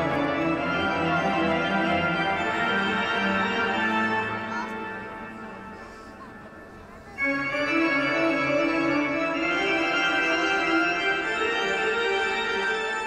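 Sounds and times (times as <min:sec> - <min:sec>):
sustained organ-like chord: 0:07.2 - 0:13.0.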